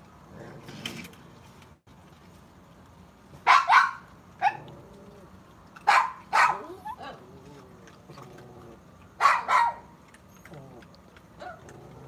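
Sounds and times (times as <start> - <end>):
raccoons snarling: 4.4 - 12.0.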